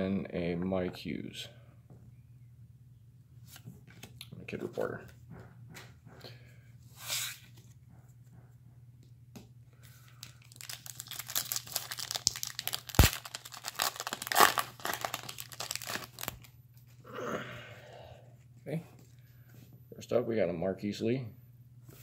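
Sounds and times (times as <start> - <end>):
foil pack tearing and crinkling: 10.2 - 16.5.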